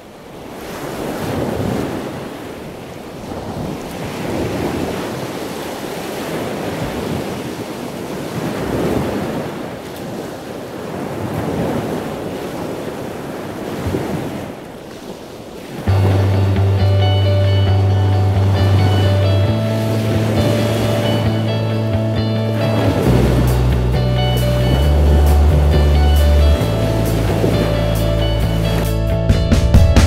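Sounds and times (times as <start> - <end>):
sea water sloshing: 0.4 - 29.0.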